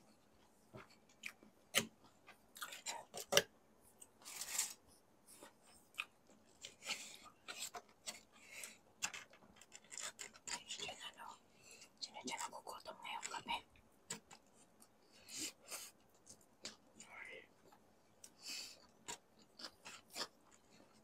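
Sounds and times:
chewing with wet mouth clicks: 0:01.1 - 0:01.9.

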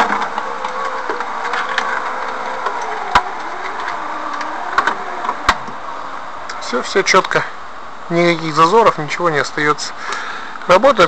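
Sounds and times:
cable rustling over rollers: 0:00.0 - 0:06.2
electric window motor whine: 0:00.0 - 0:06.5.

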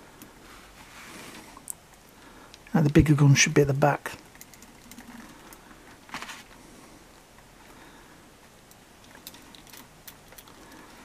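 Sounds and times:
plastic scrape: 0:06.1 - 0:06.6.

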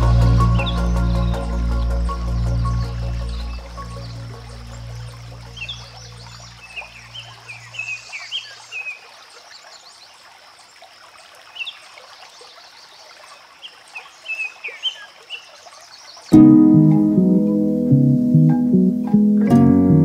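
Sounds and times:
loud plucked-string music: 0:00.0 - 0:04.6, 0:16.4 - 0:20.0
background music: 0:00.0 - 0:06.2, 0:16.4 - 0:20.0
birds chirping: 0:00.0 - 0:09.0
stream trickling over pebbles: 0:00.0 - 0:17.2.

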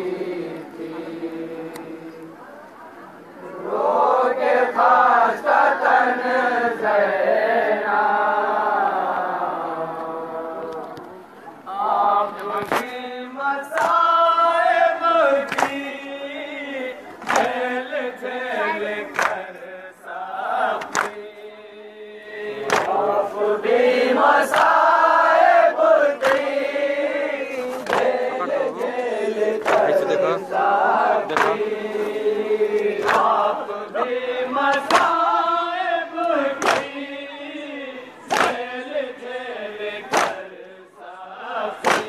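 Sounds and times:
crowd chanting: 0:00.0 - 0:42.0
men reciting a lament: 0:00.0 - 0:42.0
chest-beating slaps: 0:22.7 - 0:23.0, 0:31.3 - 0:31.7, 0:36.6 - 0:37.0, 0:38.3 - 0:38.6, 0:40.1 - 0:40.4.

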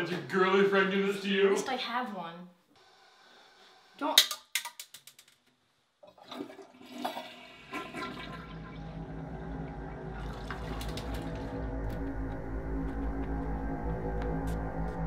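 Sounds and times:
toilet water rushing: 0:06.0 - 0:12.0.

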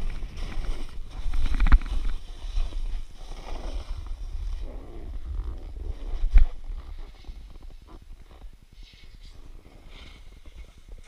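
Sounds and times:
snowboard scraping over snow: 0:00.0 - 0:07.8, 0:08.8 - 0:11.0.

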